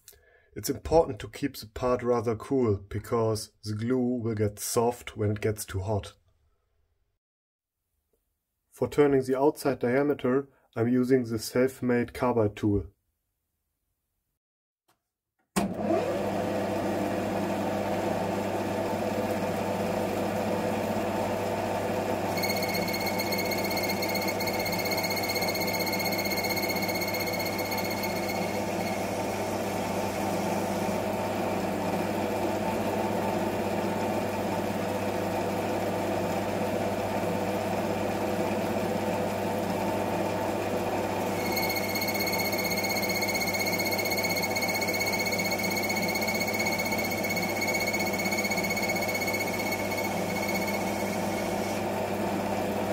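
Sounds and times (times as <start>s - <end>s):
metal lathe running: 22.3s - 31.7s, 41.3s - 51.9s
high steady whistling tone: 22.4s - 30.0s, 41.4s - 51.8s.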